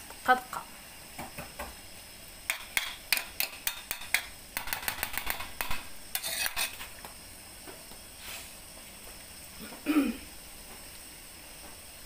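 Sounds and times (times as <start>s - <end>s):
metal spoon scraping a wok: 2.5s - 6.9s.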